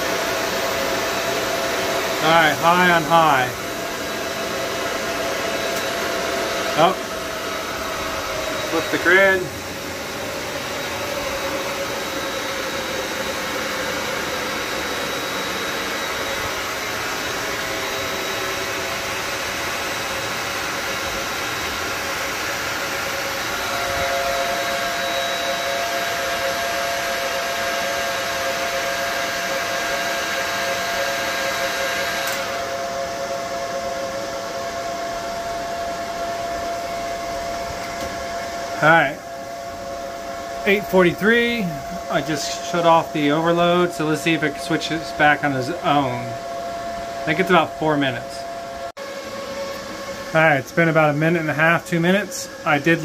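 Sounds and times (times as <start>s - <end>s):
higher whine: 0.0s - 28.4s, 32.2s - 53.0s
steady whine: 0.0s - 28.5s, 31.8s - 53.0s
cooling fans rushing air: 0.0s - 53.0s.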